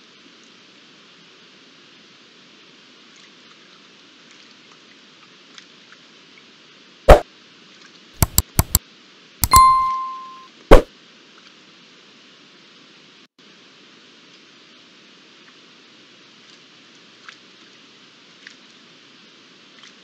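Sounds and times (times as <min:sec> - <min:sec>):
faint steady hiss: 0:00.0 - 0:20.0
quick clicks: 0:08.2 - 0:08.8, 0:09.4 - 0:10.8.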